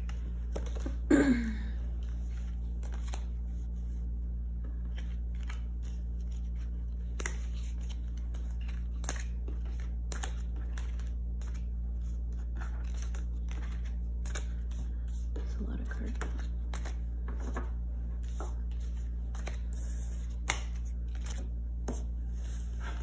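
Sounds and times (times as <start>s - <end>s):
steady low hum: 0.0s - 23.0s
cards clicking and tapping on table: 0.1s - 1.0s.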